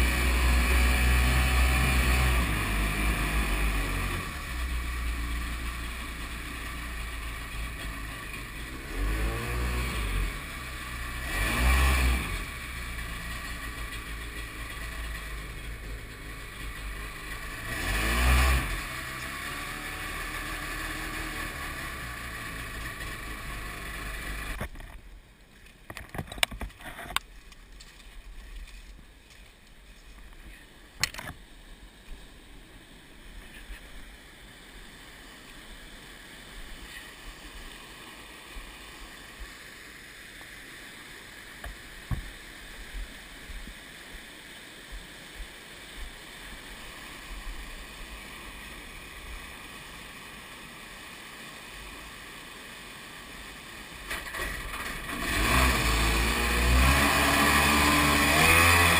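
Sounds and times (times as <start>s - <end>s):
jet ski engine running: 0.0s - 25.0s, 46.6s - 58.9s
rush of white water: 0.0s - 26.1s, 30.4s - 58.9s.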